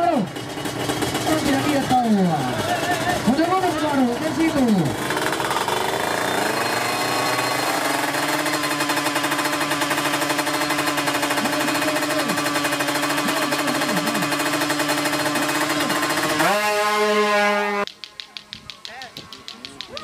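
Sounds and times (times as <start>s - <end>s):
two-stroke motorcycle engine revving: 0.0s - 20.0s.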